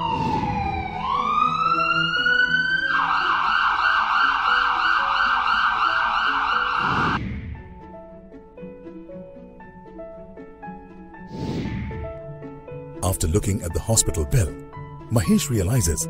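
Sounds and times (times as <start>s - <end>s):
ambulance siren: 0.0s - 7.2s.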